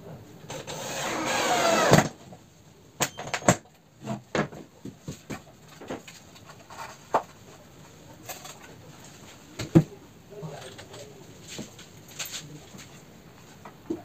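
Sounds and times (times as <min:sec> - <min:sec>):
cordless drill: 0:00.5 - 0:02.1.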